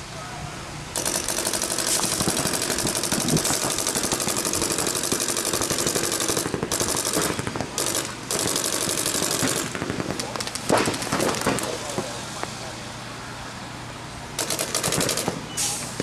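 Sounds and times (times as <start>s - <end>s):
paintball markers firing: 1.0s - 12.1s, 14.4s - 16.0s.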